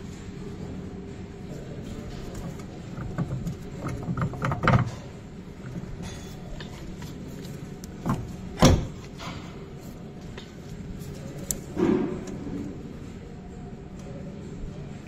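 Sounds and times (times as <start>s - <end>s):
metallic clicks and knocks: 2.1s - 9.5s.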